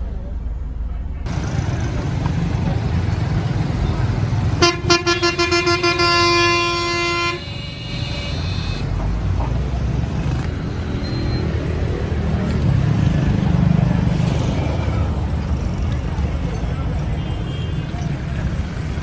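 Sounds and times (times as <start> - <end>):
street traffic rumble: 0.0 - 19.0
car horn blast: 4.6 - 8.9.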